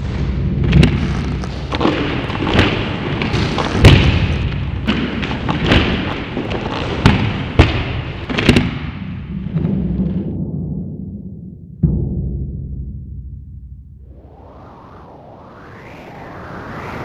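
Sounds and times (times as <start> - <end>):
continuous rumbling: 0.0 - 16.5
deep booming percussion thuds: 8.5 - 14.1.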